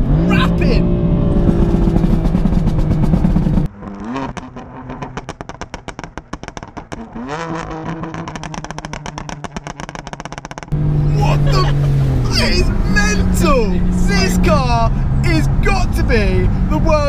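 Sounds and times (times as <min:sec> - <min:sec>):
exhaust crackles and pops: 0:00.0 - 0:10.8
car engine revving: 0:00.0 - 0:17.0.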